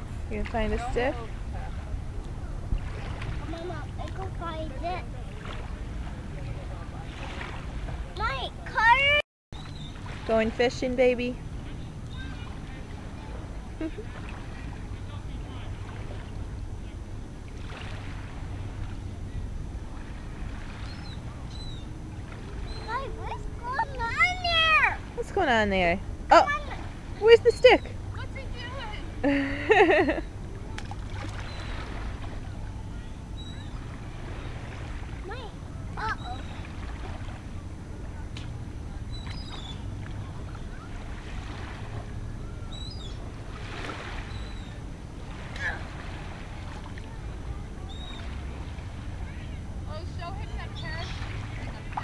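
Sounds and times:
water sloshing around feet: 0.0s - 8.2s, 9.6s - 16.7s, 17.4s - 32.8s, 33.4s - 52.0s
wind on microphone: 0.0s - 8.2s
wind rumble on microphone: 0.0s - 52.0s
water splash: 30.7s - 32.4s.

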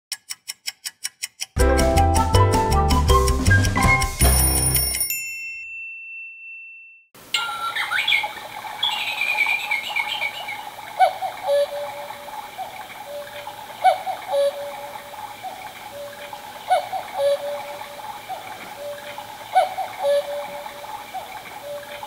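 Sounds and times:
trickling water: 7.2s - 22.0s
electronic cuckoo call: 7.3s - 10.4s, 11.0s - 12.1s, 13.1s - 15.0s, 16.0s - 17.9s, 18.8s - 20.8s, 21.6s - 22.0s
birdsong chirping: 7.3s - 22.0s.

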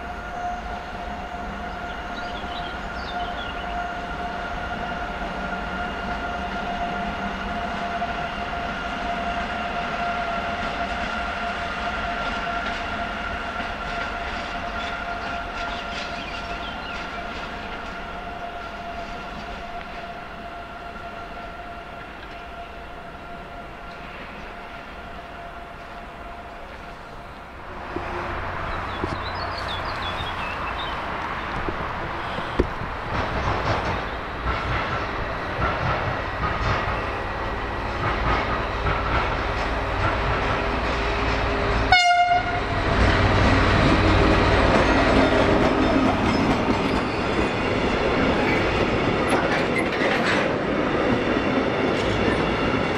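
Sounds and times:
short train horn blast: 0.0s - 16.8s, 41.2s - 45.6s
electric locomotive whine: 0.0s - 52.9s
wheel-on-rail rumble: 26.6s - 52.9s.

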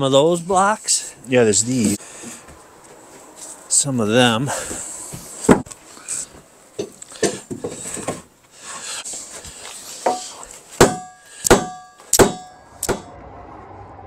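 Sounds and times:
wooden knocks and clunks: 4.7s - 5.8s, 6.8s - 8.3s
ringing metal clanks: 10.9s - 13.1s.

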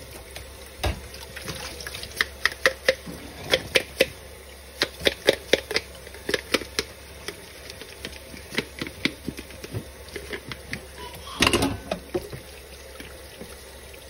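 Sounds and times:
faint tap running: 4.8s - 14.0s.

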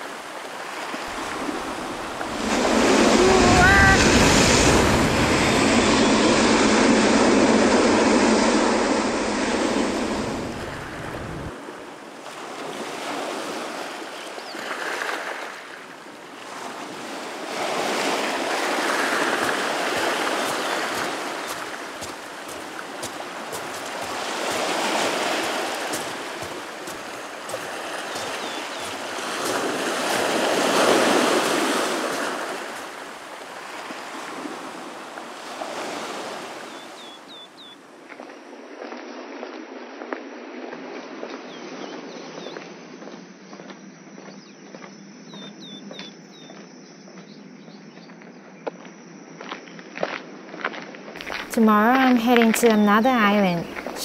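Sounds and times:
ocean surf breaking on rocks: 0.0s - 37.6s.

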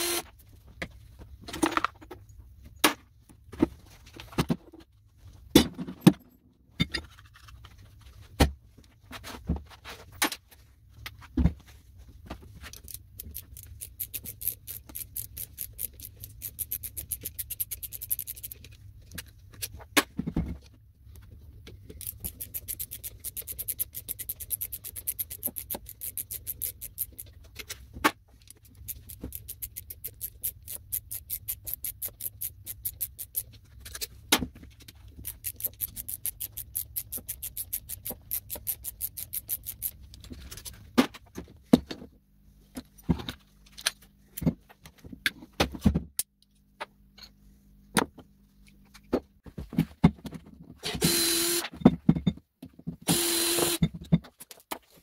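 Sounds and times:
ratcheting screwdriver clicking: 12.8s - 18.7s, 22.0s - 27.3s, 28.5s - 33.5s, 35.2s - 40.2s.

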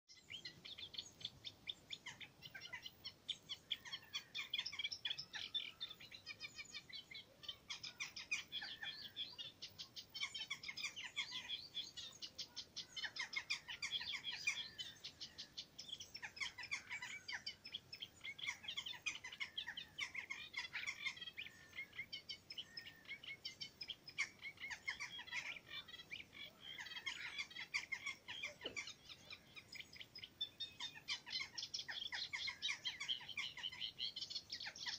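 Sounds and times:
warbler chattering song: 0.1s - 34.9s.

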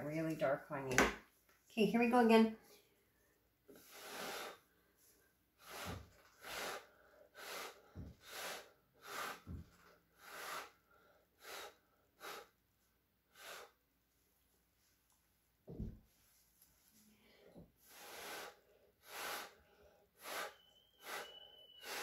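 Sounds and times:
short sharp breath puffs: 3.7s - 4.7s, 5.6s - 12.6s, 13.3s - 13.8s, 17.1s - 22.0s.

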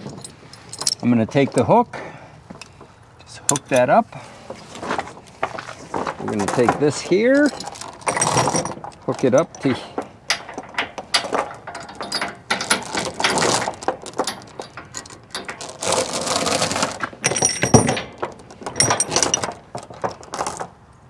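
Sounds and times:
steel chain clinking and rattling: 0.0s - 1.5s, 4.8s - 20.8s.

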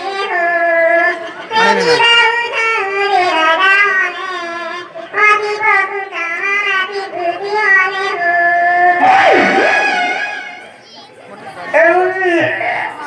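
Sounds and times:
high-pitched voice singing: 0.0s - 10.2s
held accompaniment tone: 9.0s - 10.9s.

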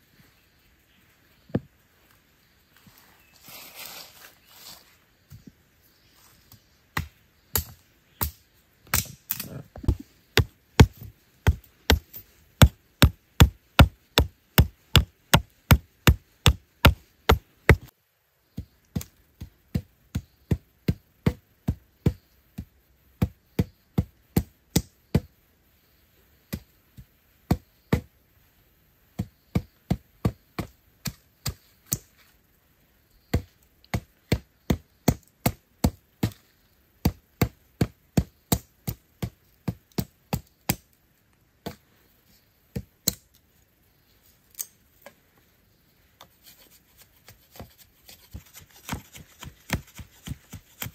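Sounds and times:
machete chopping bamboo: 7.0s - 17.9s, 37.0s - 40.9s, 42.7s - 43.3s, 47.3s - 50.9s
sharp chopping on wood: 9.8s - 17.9s, 47.5s - 50.9s.

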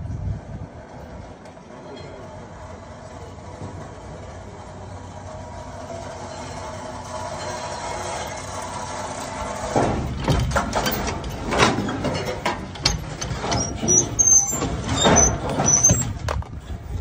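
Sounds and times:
metal creaking and squeaks: 1.8s - 17.0s
car clunking onto trailer: 9.3s - 16.6s.

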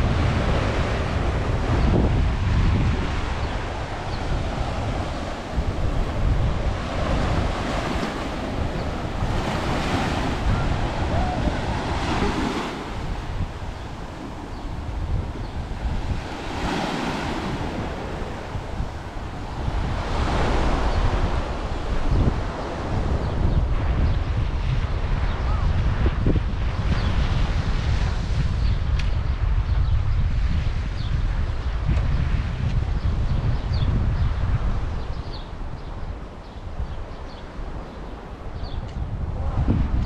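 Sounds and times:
sea waves washing onto shore: 0.0s - 28.6s
wind rumbling on microphone: 0.0s - 40.0s.

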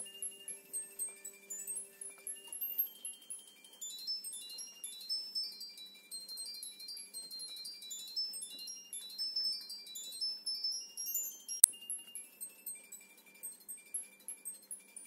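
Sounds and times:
tinkling chime music: 0.0s - 11.7s.

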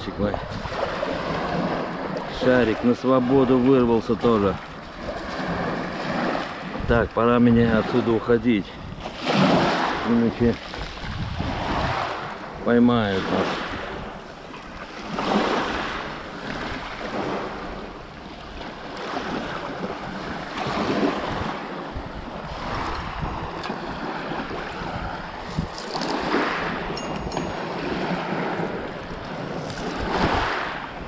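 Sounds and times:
wind buffeting microphone: 0.0s - 31.0s
waves washing onto pebbles: 9.0s - 31.0s.

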